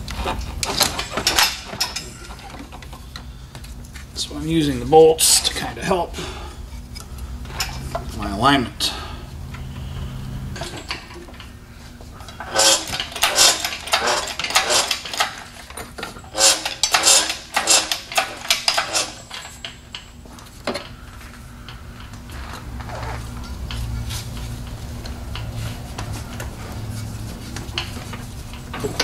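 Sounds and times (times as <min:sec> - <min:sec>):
metal clinking and clattering: 0:12.4 - 0:20.1.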